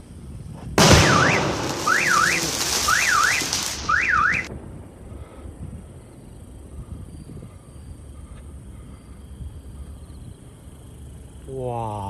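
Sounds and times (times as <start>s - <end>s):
firework boom: 0.8s - 4.5s
firework hissing and crackling: 0.8s - 4.5s.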